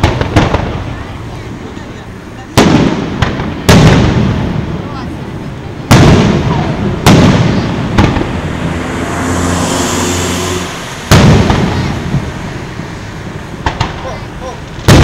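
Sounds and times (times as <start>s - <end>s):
firework boom rumbling: 2.5s - 15.0s
firework shells bursting: 10.9s - 15.0s.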